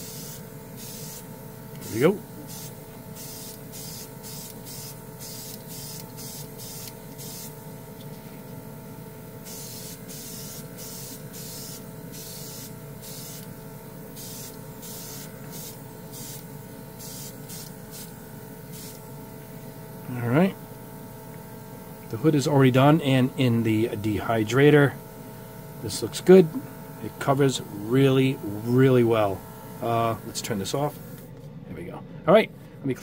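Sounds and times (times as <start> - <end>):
airbrush hissing bursts: 0.0 - 1.4, 2.4 - 7.8, 9.4 - 19.3
compressor motor hum: 0.0 - 33.0.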